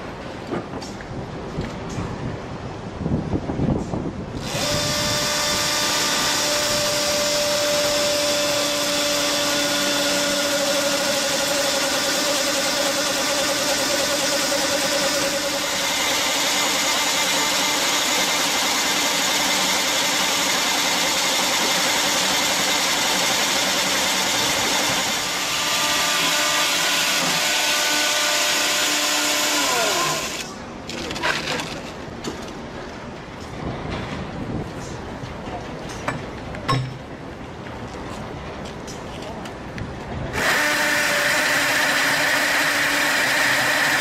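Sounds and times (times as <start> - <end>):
chainsaw cutting log: 4.4 - 30.6, 40.4 - 44.0.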